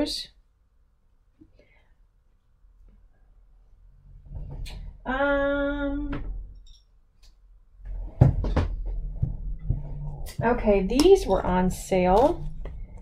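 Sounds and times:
sharp knocks and clatter: 0:08.0 - 0:10.1.

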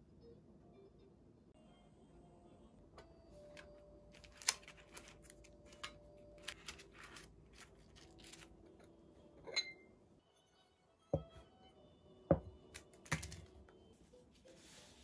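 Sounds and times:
hands sorting sticker sheets in tin: 0:03.5 - 0:08.6
ceramic bowl clinking: 0:09.4 - 0:09.9.

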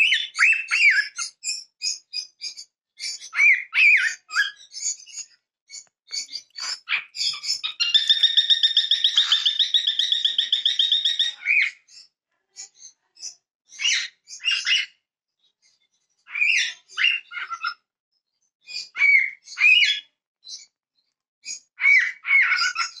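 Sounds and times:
cockatiel whistling and chirping: 0:00.0 - 0:11.8, 0:18.7 - 0:20.6, 0:21.4 - 0:23.0
cockatiel trill: 0:06.6 - 0:11.6.

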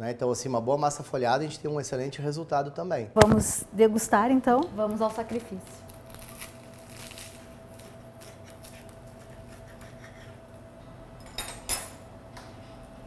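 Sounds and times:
cutlery scraping pastry: 0:06.3 - 0:10.7
cutlery clinking on plate: 0:11.2 - 0:12.0.

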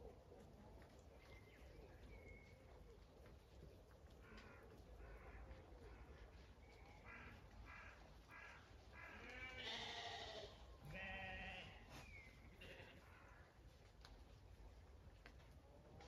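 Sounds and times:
sheep bleating: 0:09.1 - 0:11.9, 0:12.5 - 0:13.1.

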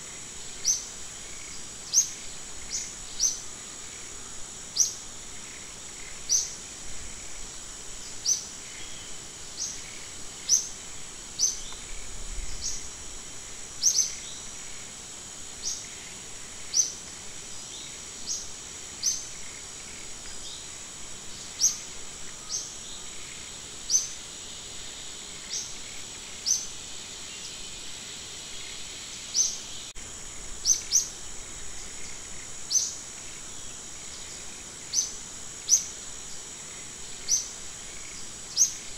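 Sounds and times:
high-pitched insect drone: 0:00.0 - 0:38.9.

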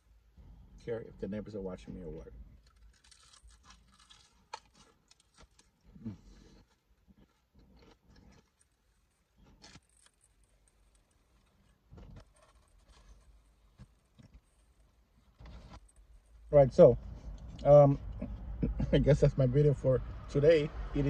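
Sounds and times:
chewing crispy food: 0:02.6 - 0:14.4.

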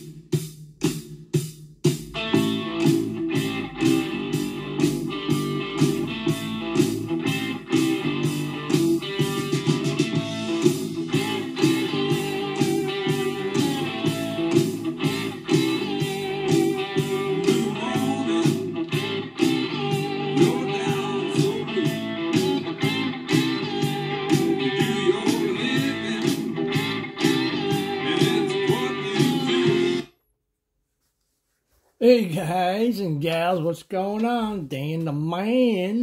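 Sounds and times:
guitar background music: 0:01.8 - 0:30.1.

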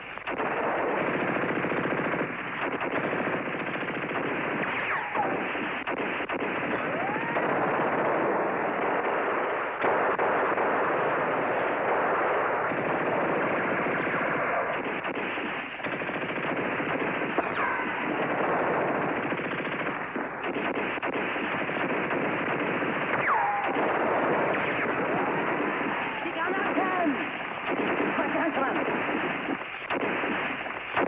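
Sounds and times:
rapid machine-gun and rifle fire: 0:00.0 - 0:31.0
ricochet whines: 0:04.6 - 0:08.5, 0:20.4 - 0:28.2.

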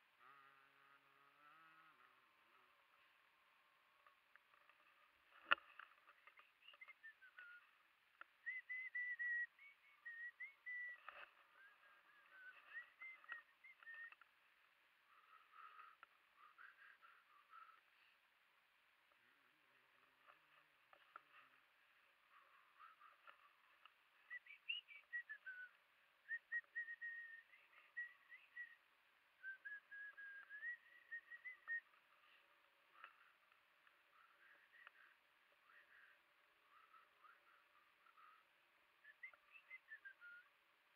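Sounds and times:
faint clicks: 0:00.0 - 0:28.8
faint high whistling: 0:06.1 - 0:14.3, 0:22.3 - 0:33.5, 0:34.1 - 0:38.4, 0:39.0 - 0:40.6.

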